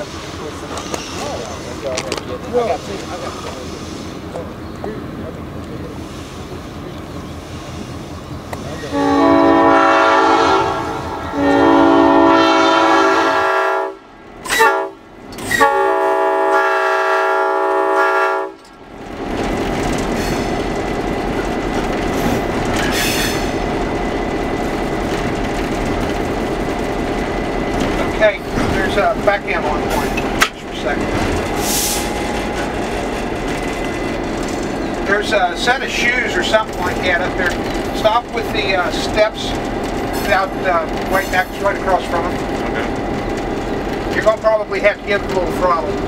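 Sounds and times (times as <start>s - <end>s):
diesel locomotive engine: 0.0s - 46.0s
locomotive air horn blasts: 8.9s - 18.6s.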